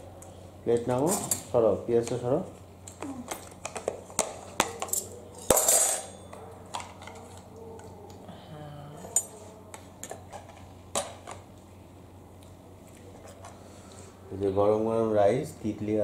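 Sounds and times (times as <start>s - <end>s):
spoons and plates clinking: 3.6s - 7.3s.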